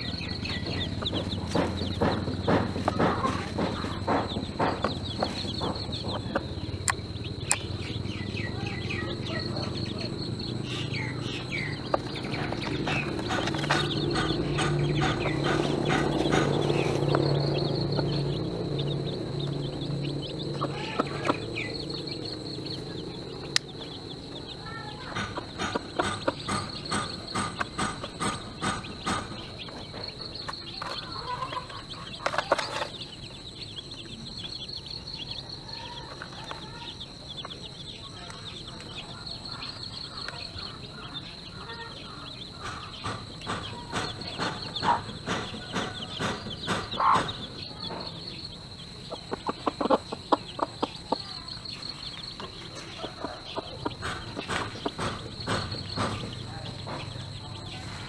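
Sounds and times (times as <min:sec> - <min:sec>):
hen clucking: 0:00.0 - 0:33.8, 0:38.3 - 0:58.0
chickens pecking on rubber tray: 0:00.0 - 0:34.2, 0:49.0 - 0:58.0.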